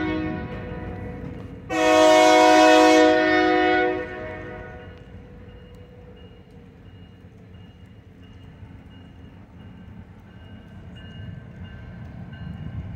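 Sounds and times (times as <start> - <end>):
locomotive air horn blast: 0.0 - 4.9.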